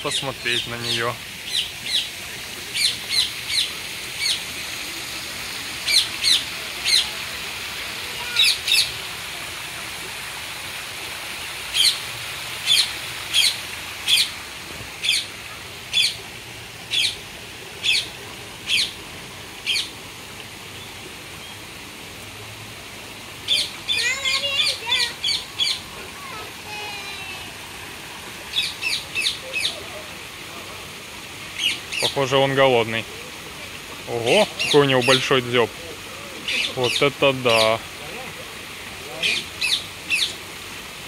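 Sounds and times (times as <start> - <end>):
birds chirping: 0.0 - 4.7, 5.8 - 7.1, 8.2 - 9.0, 11.7 - 12.0, 12.6 - 14.3, 15.0 - 15.3, 15.9 - 16.2, 16.8 - 17.2, 17.8 - 19.0, 19.6 - 20.0, 23.4 - 25.9, 28.5 - 29.8, 31.5 - 32.5, 34.1 - 37.8, 39.2 - 40.4.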